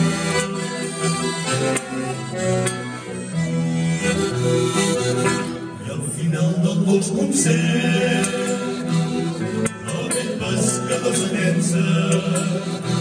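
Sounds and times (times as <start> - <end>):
instrumental accompaniment: 0.0 - 6.2, 7.0 - 13.0
voices singing: 5.8 - 13.0.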